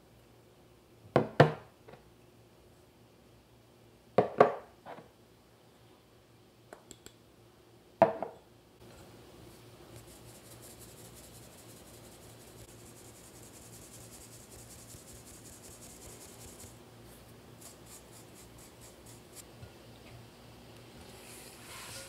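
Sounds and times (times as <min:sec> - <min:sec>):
spatula scraping wire strainer: 0:21.2 - 0:22.0.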